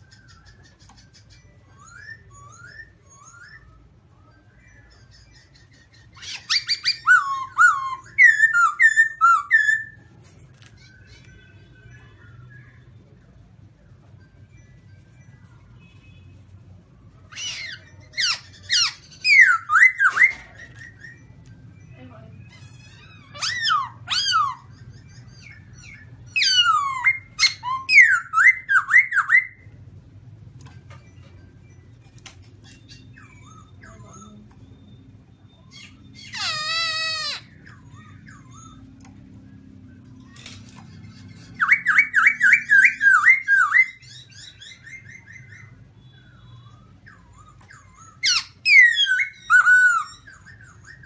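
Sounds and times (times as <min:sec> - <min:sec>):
bird singing whistled notes: 0:01.4 - 0:05.3, 0:06.2 - 0:10.1, 0:17.2 - 0:29.7, 0:41.3 - 0:51.0.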